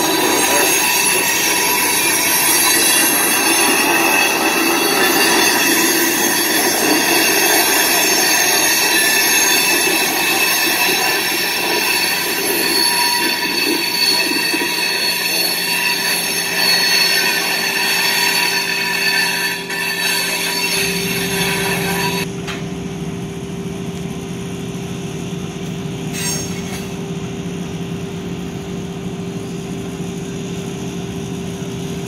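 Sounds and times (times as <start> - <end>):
steel wheels squealing: 0.0 - 22.3, 26.1 - 27.0
rail cars rolling: 0.0 - 22.6.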